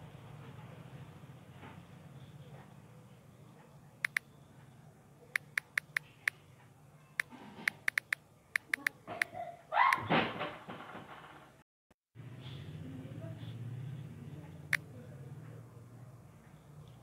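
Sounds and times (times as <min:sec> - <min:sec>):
phone keyboard tap clicks: 0:07.7 - 0:08.9.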